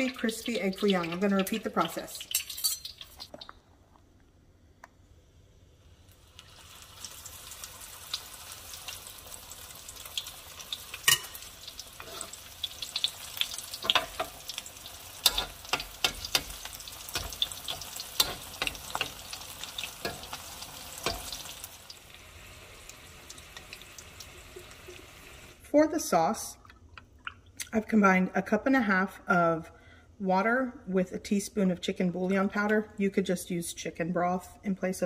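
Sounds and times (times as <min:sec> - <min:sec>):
batter sizzling in hot oil: 0:00.0 - 0:03.4, 0:06.0 - 0:25.6.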